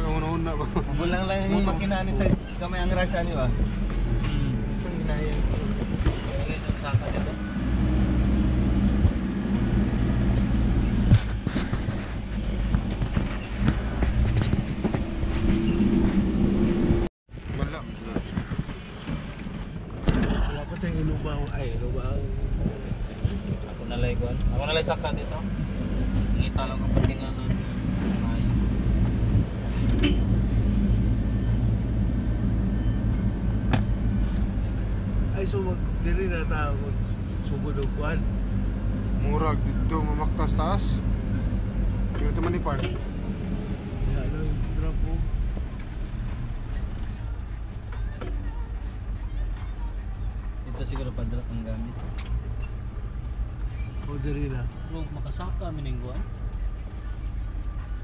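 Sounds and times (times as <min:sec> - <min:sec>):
truck engine running: 0:00.0 - 0:17.1, 0:18.2 - 0:58.0
vehicle knocks and rattles: 0:10.8 - 0:16.6.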